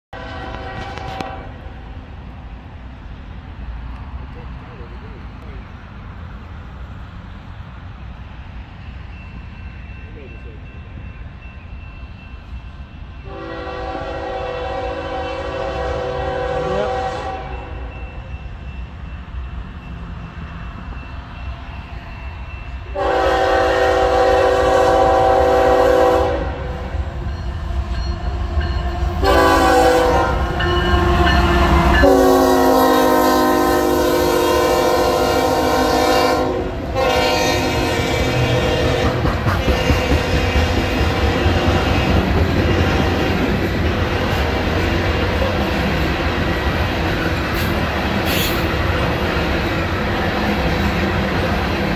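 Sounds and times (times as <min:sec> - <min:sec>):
locomotive air horn blasts: 0:00.1 - 0:01.7, 0:13.2 - 0:17.9, 0:22.9 - 0:27.0, 0:29.2 - 0:31.4, 0:32.0 - 0:41.0
locomotive rumble: 0:00.2 - 0:51.9
train cars rolling on rails: 0:00.2 - 0:51.9.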